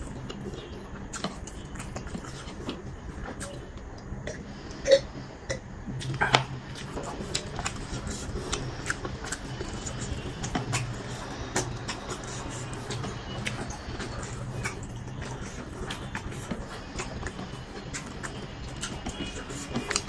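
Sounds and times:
wet chewing and lip smacking: 0.0s - 4.1s, 6.0s - 20.0s.

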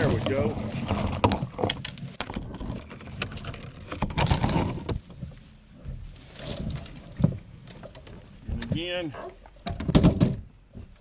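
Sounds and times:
leafy branches rustling: 0.0s - 9.6s.

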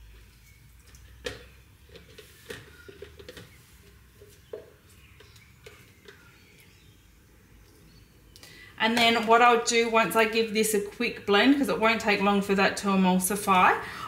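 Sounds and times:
spatula scraping plastic: 1.4s - 6.5s.

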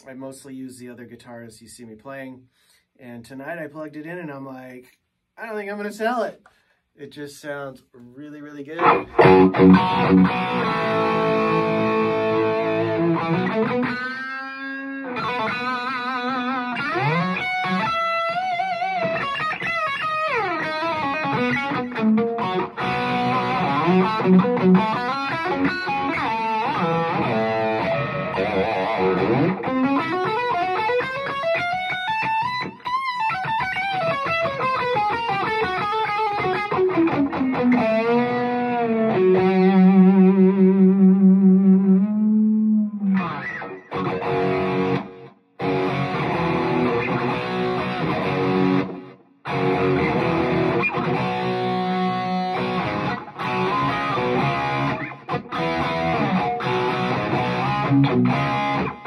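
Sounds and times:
electric guitar lead: 8.8s - 59.0s.

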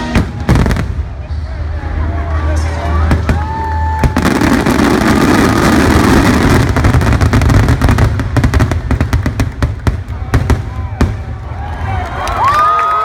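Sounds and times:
fireworks launches and bursts: 0.0s - 1.3s, 3.0s - 12.0s.

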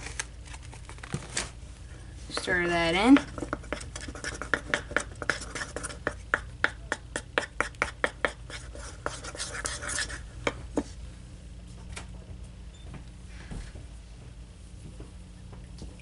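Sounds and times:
stir stick knocking on bowl: 2.3s - 10.9s.

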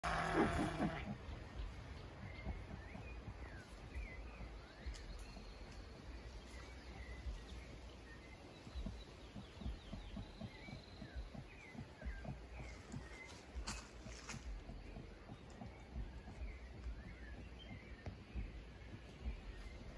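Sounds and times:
low uneven rumble: 0.0s - 19.9s.

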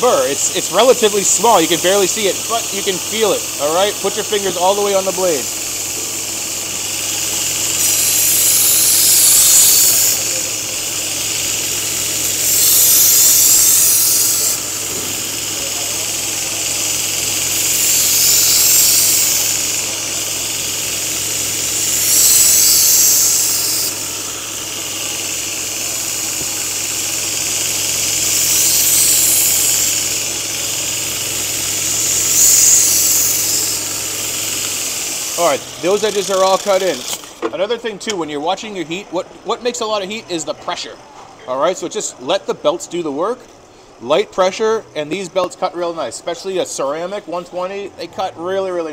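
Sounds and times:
belt grinder motor hum: 0.0s - 37.4s
knife grinding on belt: 1.3s - 37.4s.

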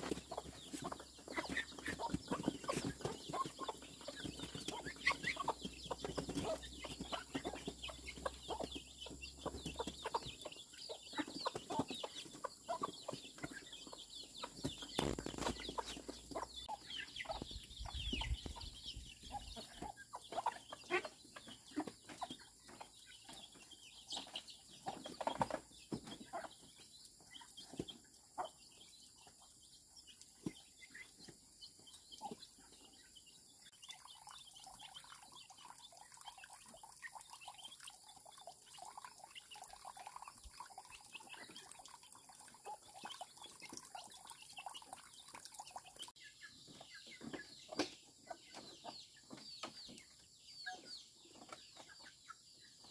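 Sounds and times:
chickens clucking: 0.0s - 52.9s.

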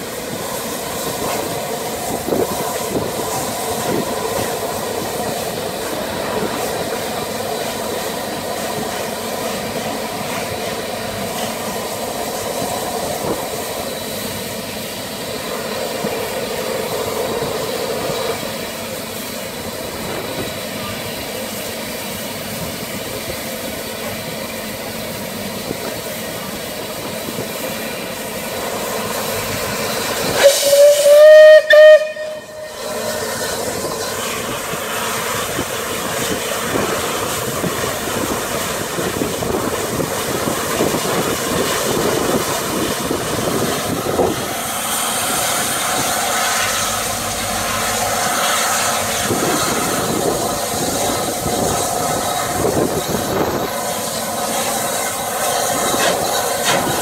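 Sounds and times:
steam hissing: 0.0s - 57.0s
steam locomotive whistle: 30.2s - 33.9s.

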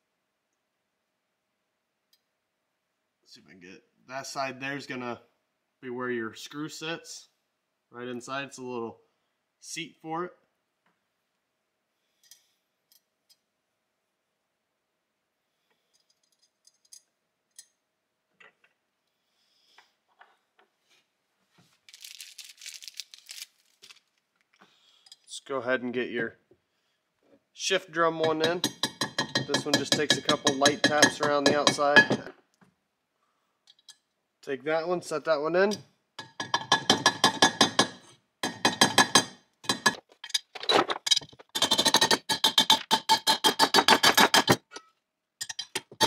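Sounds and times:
metal parts clicking and tapping: 15.9s - 17.8s, 28.2s - 32.3s, 33.7s - 34.0s, 36.2s - 46.0s
rustling and scraping: 20.0s - 24.6s.

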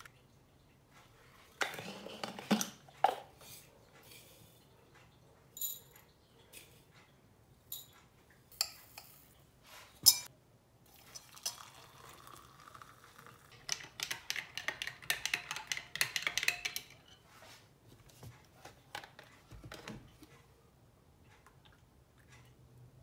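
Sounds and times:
teaspoon clinking glass: 10.0s - 10.3s
water pouring into glass: 10.9s - 13.6s.

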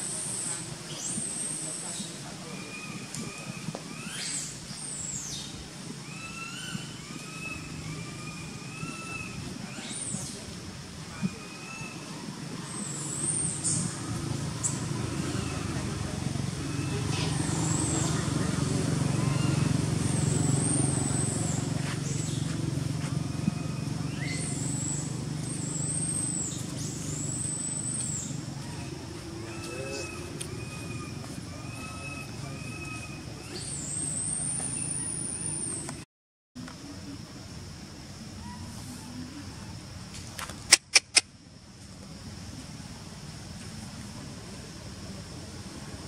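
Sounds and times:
distant road traffic rumble: 0.0s - 36.0s, 36.6s - 46.0s
whistled bird calls: 0.4s - 10.4s, 23.3s - 35.9s.

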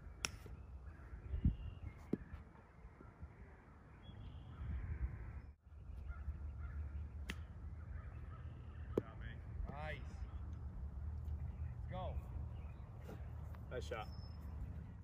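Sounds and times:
faint bird calls: 0.0s - 10.5s
low wind rumble: 0.0s - 13.6s.

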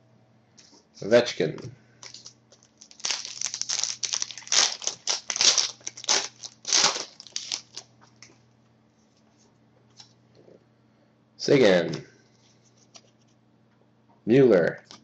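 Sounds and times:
foil wrapper tearing and crinkling: 2.0s - 7.9s.

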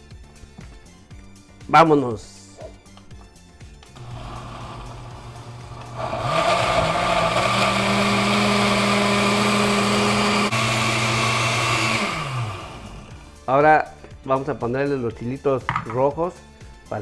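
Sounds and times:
blender motor grinding: 4.0s - 13.3s.

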